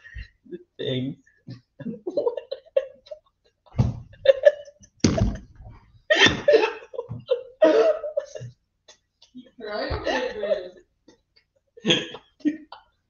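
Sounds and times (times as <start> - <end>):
people laughing: 1.8 - 5.5, 6.1 - 8.5.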